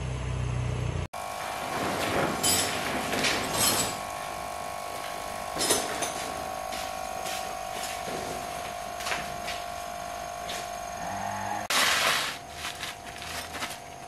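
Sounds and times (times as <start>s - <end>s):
steady hum: 0.0s - 14.0s
footsteps in sandals on concrete: 4.9s - 10.9s, 11.7s - 14.0s
tarpaulin rustling: 11.7s - 14.0s.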